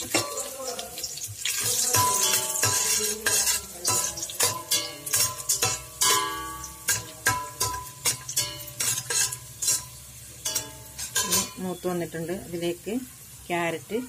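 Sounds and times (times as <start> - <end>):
oil sizzling: 0.0 - 14.0
metal spoon scraping pot: 1.4 - 11.8.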